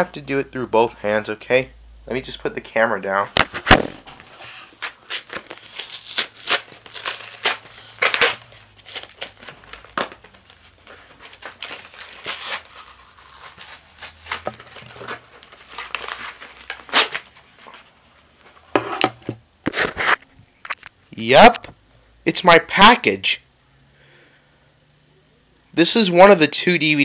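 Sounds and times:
packaging crinkling and tearing: 3.7 - 17.9.

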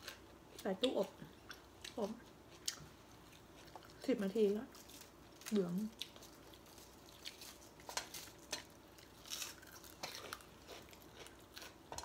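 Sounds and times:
chewing and biting: 4.8 - 12.0.

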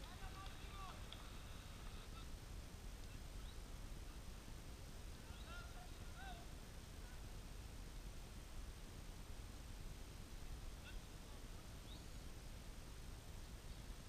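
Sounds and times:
faint distant calls: 0.0 - 7.6, 9.8 - 12.7
low outdoor rumble: 0.0 - 14.0.

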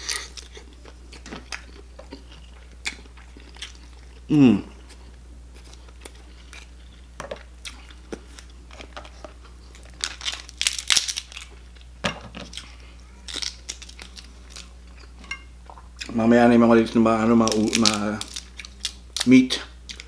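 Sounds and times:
chewing: 0.0 - 4.2, 4.8 - 10.4
crab shell crunching and tearing: 7.7 - 14.8, 17.4 - 20.0.

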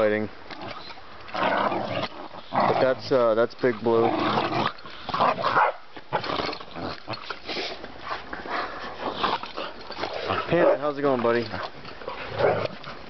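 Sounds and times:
dogs barking while playing: 5.1 - 6.2.

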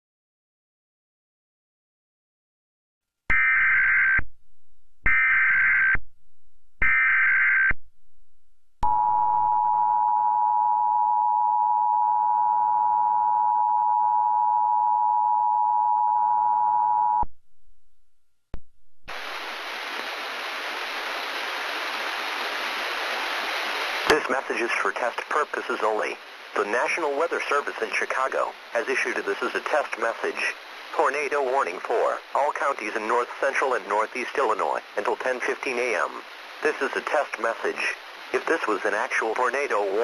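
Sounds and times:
two-tone alert signal: 3.3 - 4.2, 6.8 - 7.8
steady hiss: 19.1 - 40.0.

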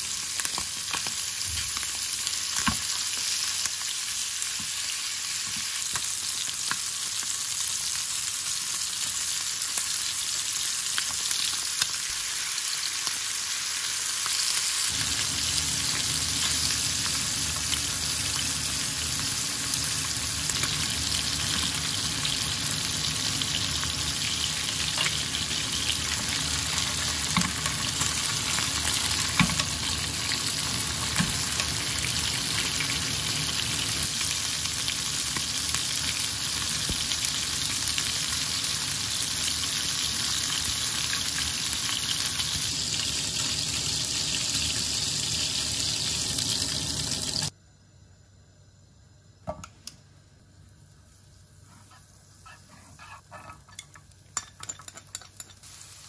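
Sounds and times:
chicken sizzling in oil: 0.0 - 47.5, 55.4 - 56.0.

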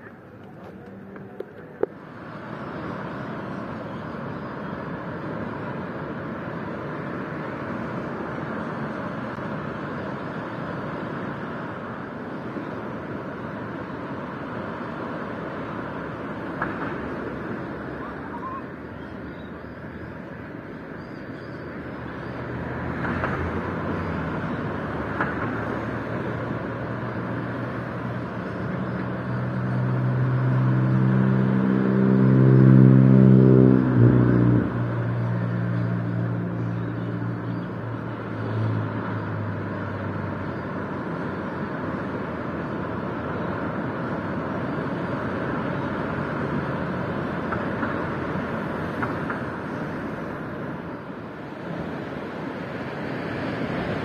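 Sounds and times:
outdoor background rush: 0.0 - 54.0
vehicle engine passing: 22.3 - 41.3.

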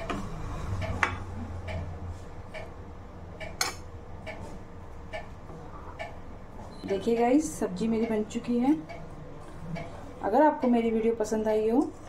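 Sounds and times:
soft regular ticking: 1.6 - 4.4, 5.0 - 5.4, 6.0 - 6.2, 6.8 - 9.1.

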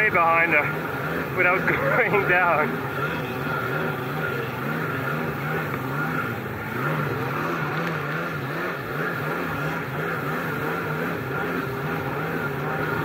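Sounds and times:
jet ski engine: 0.0 - 13.0.

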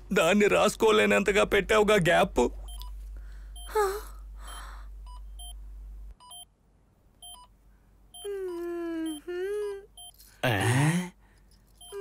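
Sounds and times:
short electronic beeps: 6.2 - 6.5, 10.0 - 10.2.

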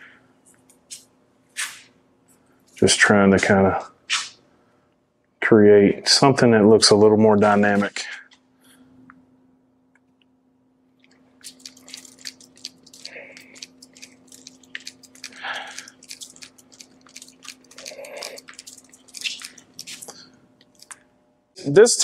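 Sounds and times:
sticky clicks and squelches: 11.1 - 21.0.

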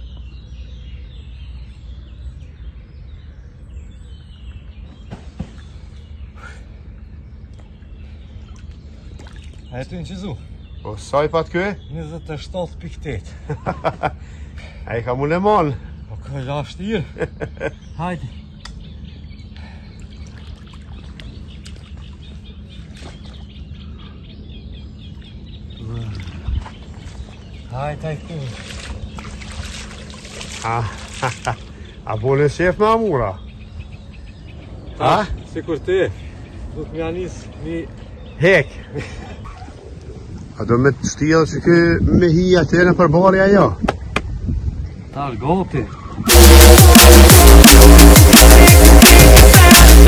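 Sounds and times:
bird chirps: 0.0 - 40.3
steady low rumble: 0.0 - 45.2, 46.2 - 50.0
water sloshing and splashing: 7.5 - 10.0, 19.9 - 24.2, 25.1 - 32.0.

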